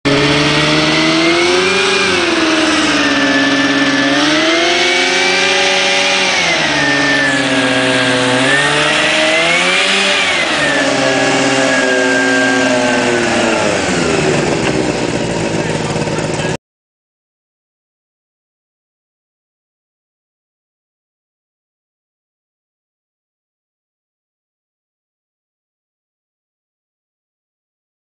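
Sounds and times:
hovercraft engine and fan revving: 0.0 - 16.6.

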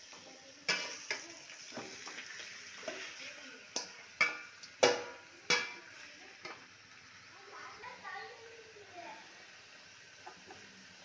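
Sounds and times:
faint steady hiss: 0.0 - 11.0
metal spatula scraping pan: 0.7 - 1.2.

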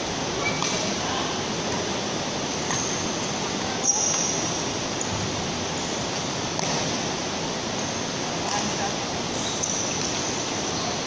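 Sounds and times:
steady rushing background noise: 0.0 - 11.0.

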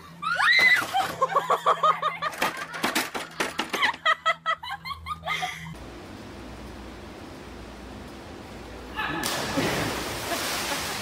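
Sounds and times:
girls laughing: 0.8 - 5.8.

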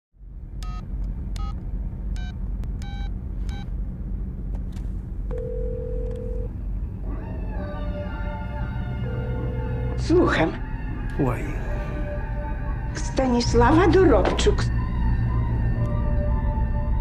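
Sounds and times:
phone ringing tone: 5.3 - 6.5, 9.0 - 10.0.

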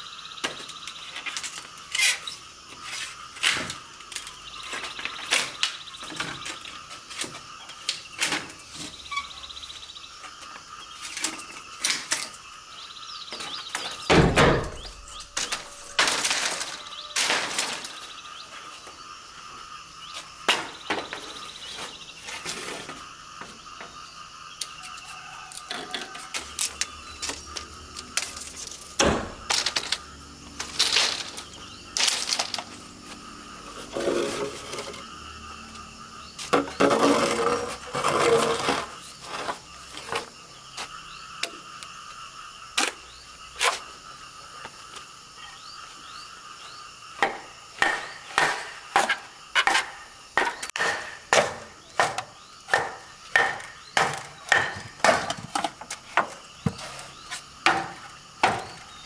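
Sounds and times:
knocks and clatters of hand work: 47.2 - 58.9.

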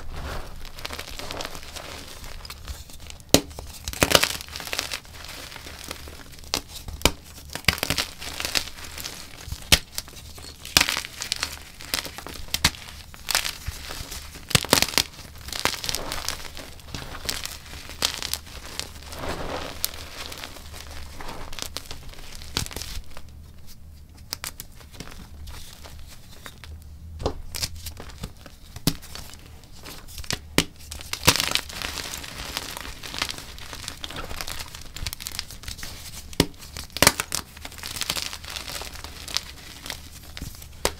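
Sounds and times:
chalk being crushed: 0.0 - 23.1.

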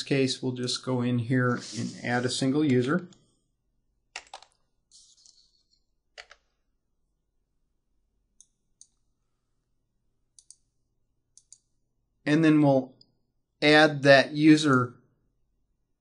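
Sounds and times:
computer keyboard keystrokes: 4.2 - 4.6, 6.1 - 6.4.

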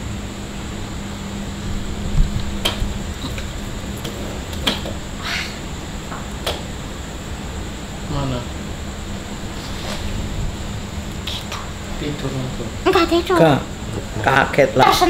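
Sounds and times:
low room hum: 0.0 - 15.0
short scraping hiss: 9.6 - 10.2.

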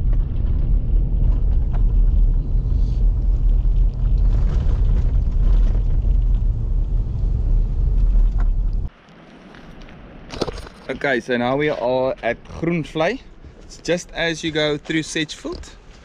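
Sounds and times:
stones ticking: 0.0 - 8.9
car tyres rumbling on gravel: 0.0 - 12.2.

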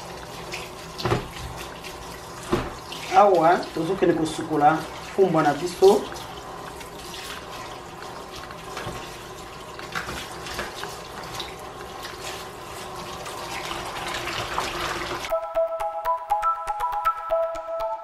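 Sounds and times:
tap water running into bowl: 0.0 - 15.3
music: 15.3 - 18.0.

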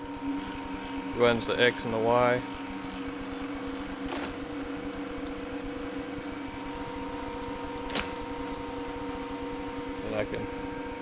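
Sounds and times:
electric motor hum with whine: 0.0 - 11.0.

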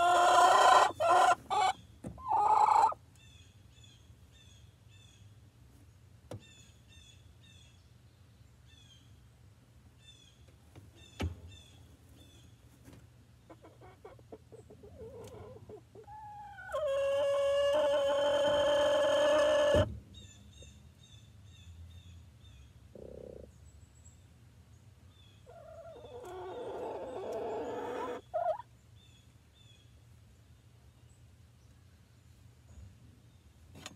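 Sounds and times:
hen calling: 0.0 - 3.0, 14.9 - 19.9
small birds chirping: 20.1 - 33.9.

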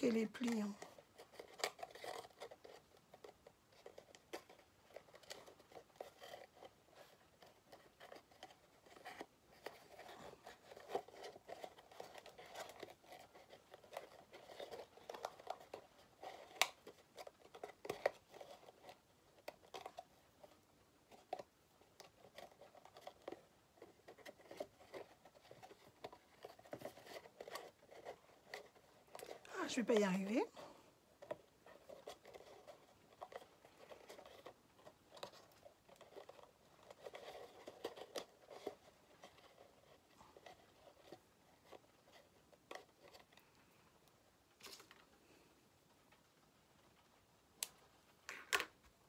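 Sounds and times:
paper rustling and crinkling: 0.0 - 43.5, 44.5 - 45.2
small clicks of paper folds: 31.2 - 45.5.

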